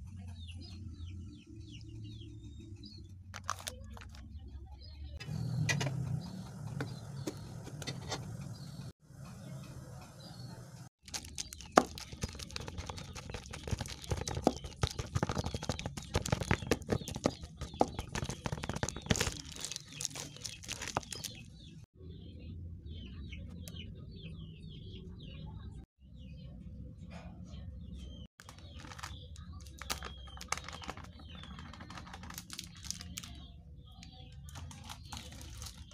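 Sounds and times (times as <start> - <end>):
fork mashing potatoes: 11.2 - 21.2.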